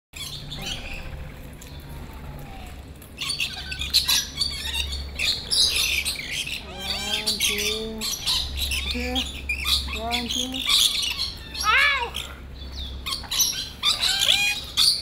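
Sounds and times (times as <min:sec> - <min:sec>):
parrots chattering and screeching: 0:00.2 - 0:01.3, 0:01.9 - 0:15.0.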